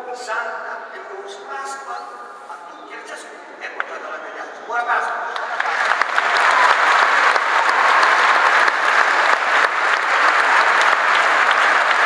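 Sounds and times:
congregation clapping: 5.3s - 12.0s.

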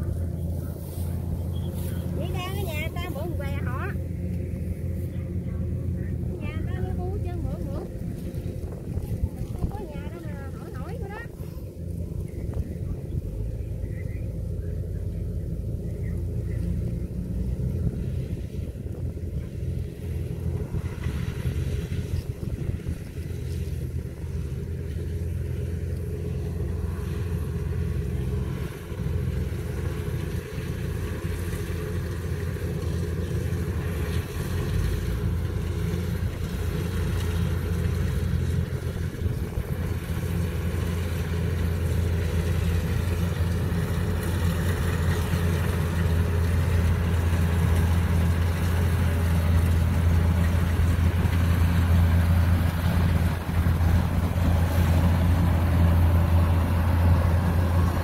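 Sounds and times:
combine harvester humming: 0.0s - 58.0s.

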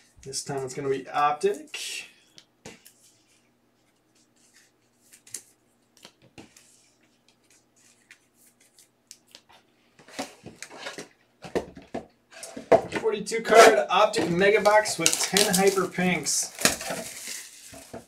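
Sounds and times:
trading cards rustling and clicking: 13.6s - 18.0s.

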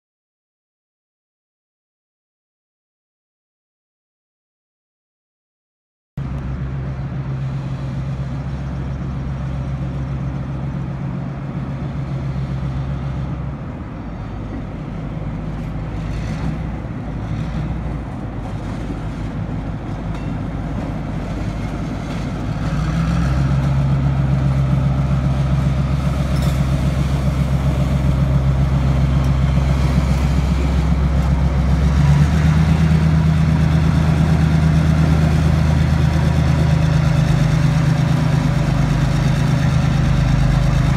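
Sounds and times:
diesel locomotive engines humming: 6.2s - 40.9s.

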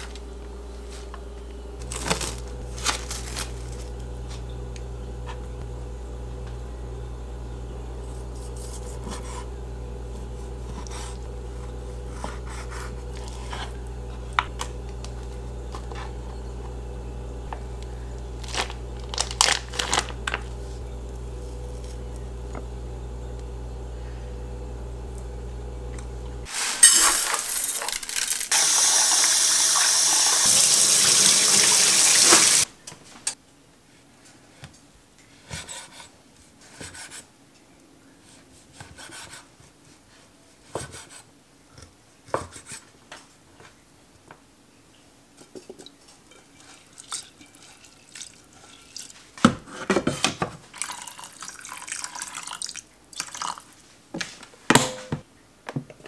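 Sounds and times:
low hum: 0.0s - 26.5s
plastic packaging crinkle: 1.8s - 3.9s, 18.4s - 20.5s, 26.5s - 28.6s
tap water running into pot: 26.8s - 32.7s, 50.7s - 53.6s.

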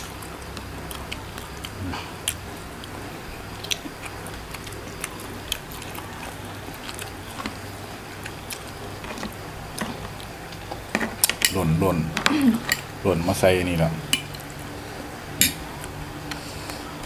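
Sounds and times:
chewing: 0.0s - 11.4s
steady low hum: 0.0s - 17.0s.

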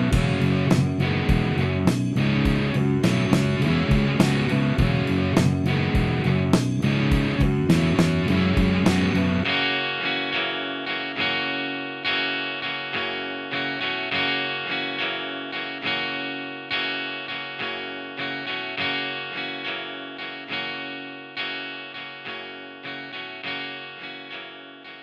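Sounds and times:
picked guitar notes: 0.0s - 25.0s.

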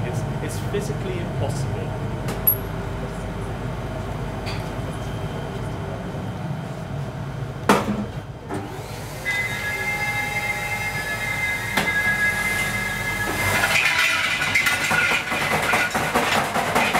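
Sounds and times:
machinery humming: 0.0s - 16.9s
high machine whine: 8.7s - 15.5s.

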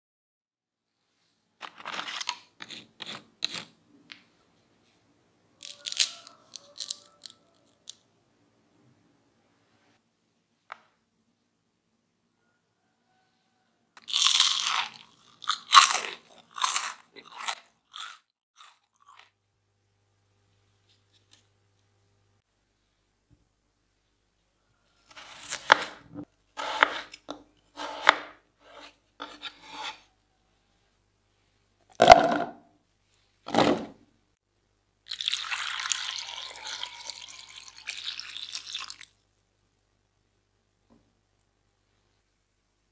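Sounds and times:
knife slicing potato: 25.0s - 30.1s.

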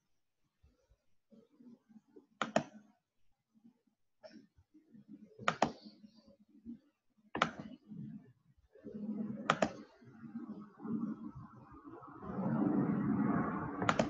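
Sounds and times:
computer mouse clicking: 2.4s - 2.8s, 5.4s - 6.0s, 7.4s - 7.8s, 9.4s - 9.9s, 13.8s - 14.0s.

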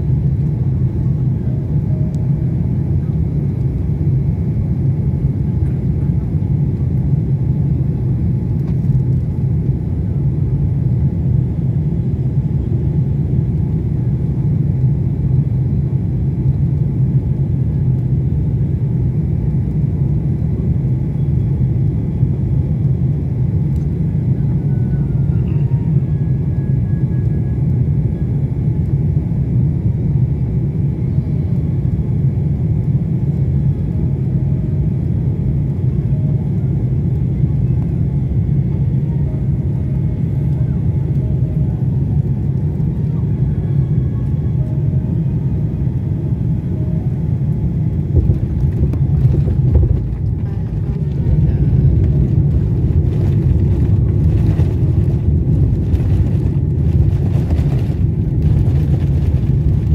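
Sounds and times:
jet engine and airflow rumble: 0.0s - 59.9s
rushing of plane on runway: 48.1s - 59.9s.

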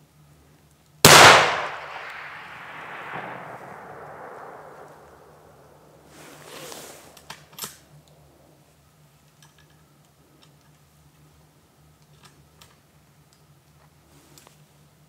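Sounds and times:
rifle shot echoing: 1.0s - 6.1s
rifle bolt metallic clicks: 1.1s - 3.4s.

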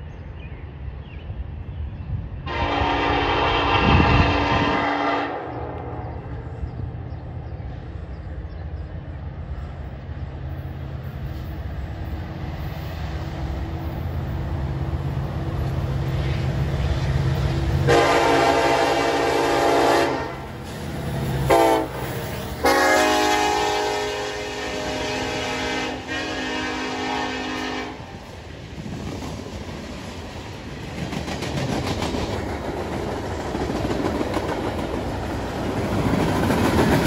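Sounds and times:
diesel locomotive engine rumble: 0.0s - 37.0s
locomotive horn blasts: 2.5s - 6.2s, 17.8s - 20.5s, 21.5s - 22.0s, 22.6s - 28.1s.

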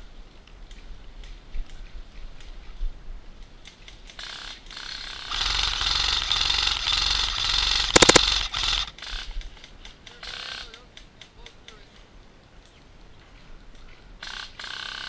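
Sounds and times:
airsoft guns full-auto bursts: 4.4s - 9.0s.

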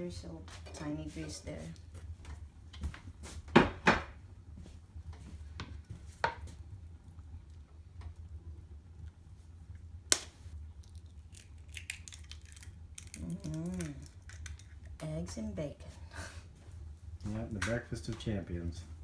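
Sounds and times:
egg cracking on pan rim: 10.1s - 15.0s.

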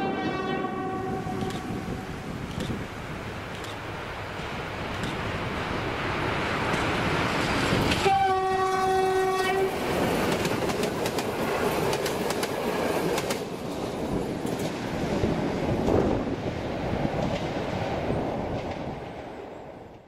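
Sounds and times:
train horn blast: 0.0s - 2.2s, 8.0s - 9.8s
diesel locomotive engine: 0.0s - 20.0s
train wheels clicking over rail joints: 1.4s - 5.5s, 6.5s - 8.2s, 9.8s - 14.9s.

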